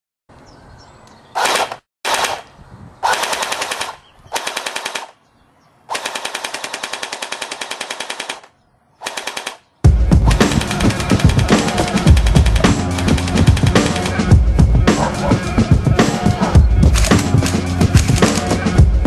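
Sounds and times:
bb gun firing full auto: 1.4 - 5.2, 5.9 - 9.7, 10.3 - 14.2.

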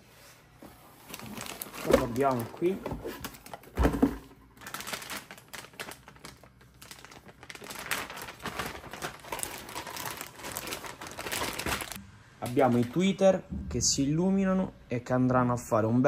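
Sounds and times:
packaging crinkling and rustling: 1.0 - 13.0.

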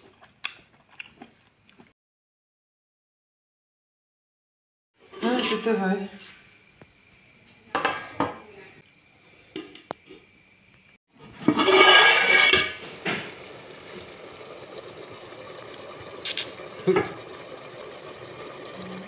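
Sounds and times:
liquid sloshing: 11.3 - 19.0
water bubbling at a boil: 11.3 - 19.0.

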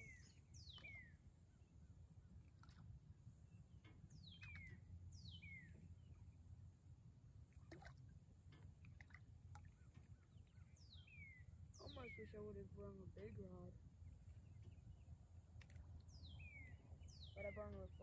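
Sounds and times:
faint clicks: 15.5 - 15.9.

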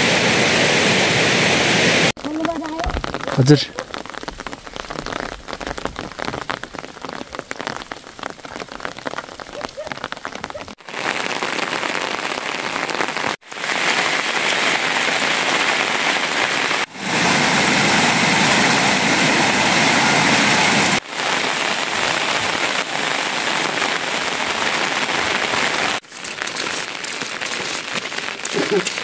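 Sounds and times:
steady rain hiss: 0.0 - 29.0.

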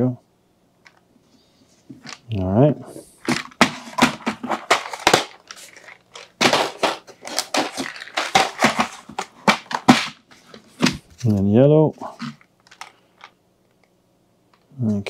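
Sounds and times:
plastic packaging crinkling: 3.3 - 11.1, 12.2 - 13.4.

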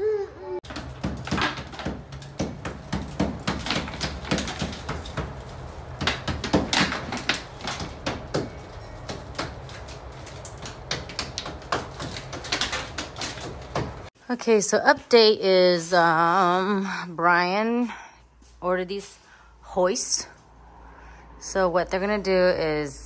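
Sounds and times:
hand tool chipping stucco: 0.6 - 14.1.

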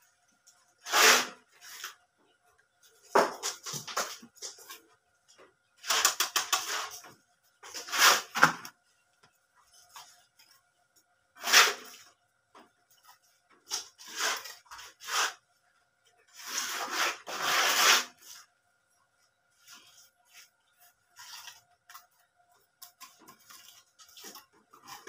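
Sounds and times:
concrete blocks scraping: 5.8 - 8.6, 13.8 - 15.4, 16.3 - 18.5.

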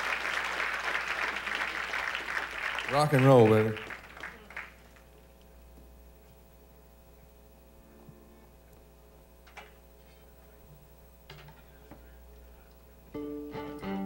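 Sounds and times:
amplifier electrical hum: 2.8 - 14.0.

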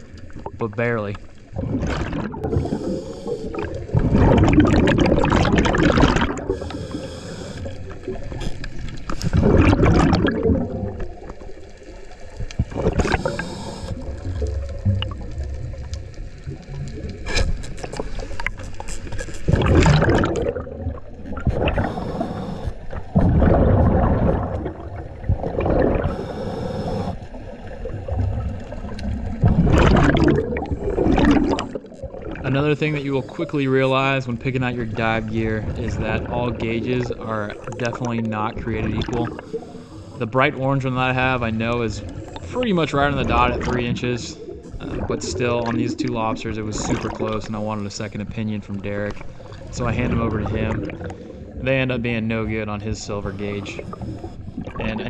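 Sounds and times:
exhaled bubbles gushing: 0.0 - 55.0
hissing regulator inhale: 2.4 - 3.9, 6.4 - 8.0, 13.0 - 14.2, 21.7 - 23.0, 26.0 - 27.4, 32.9 - 33.8, 39.2 - 40.4, 53.2 - 54.7.

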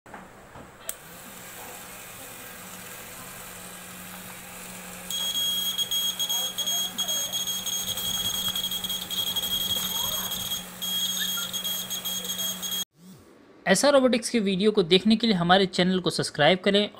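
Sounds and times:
gear motor humming: 2.2 - 12.8
high-pitched buzzer alarm: 5.1 - 12.9.

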